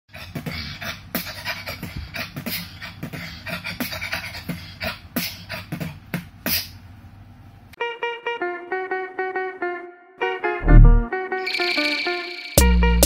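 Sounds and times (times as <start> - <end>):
person beatboxing: 0.1 - 6.8.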